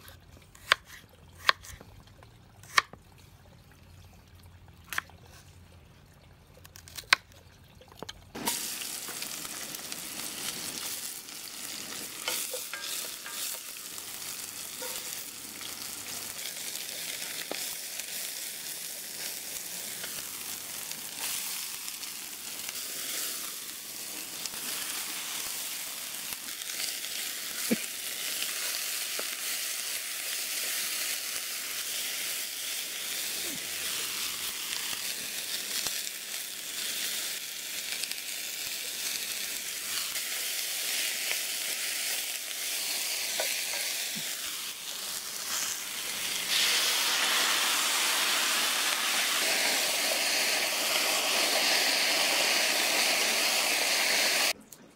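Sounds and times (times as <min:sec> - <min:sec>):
vegetables sizzling in hot oil: 0:08.4 - 0:54.6.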